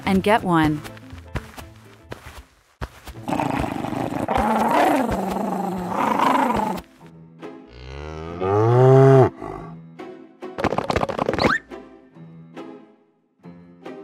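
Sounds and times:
rough drawn-out animal cry: 3.3 - 6.8
cow mooing: 7.7 - 9.8.

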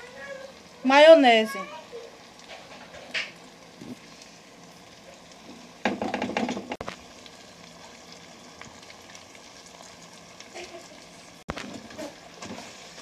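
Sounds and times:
food sizzling in a pot: 0.0 - 13.0.

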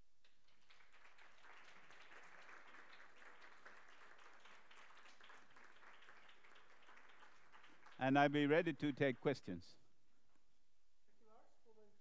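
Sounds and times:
faint audience applause: 0.3 - 9.6.

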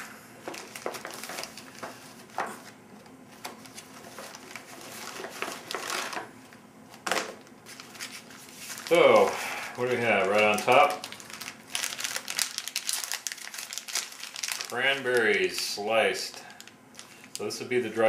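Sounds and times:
plastic packets rustling and crinkling: 0.4 - 6.3, 6.9 - 18.0.

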